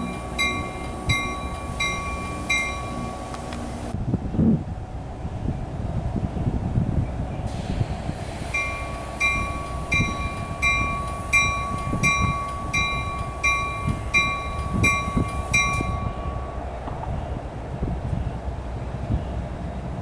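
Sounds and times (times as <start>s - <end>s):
bell ringing: 0.0s - 3.4s, 8.6s - 16.6s.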